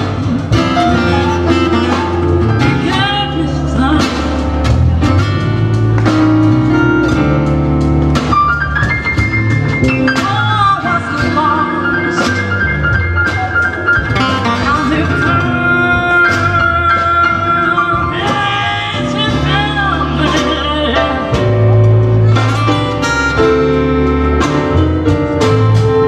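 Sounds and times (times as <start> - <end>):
acoustic guitar: 0.0 - 26.0
drum kit: 0.0 - 26.0
electric bass: 0.0 - 26.0
woman singing: 2.6 - 4.6, 10.1 - 12.4, 14.4 - 21.5.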